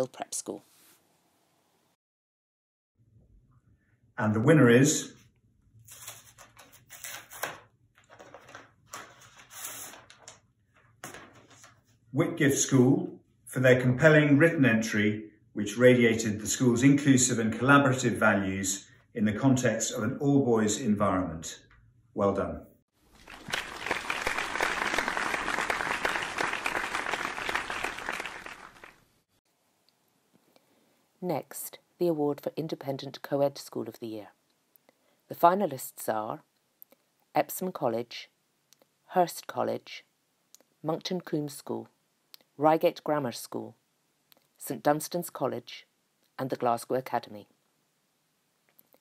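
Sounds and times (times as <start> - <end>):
paper rustling and crinkling: 5.8 - 12.0
crowd applause: 23.2 - 29.0.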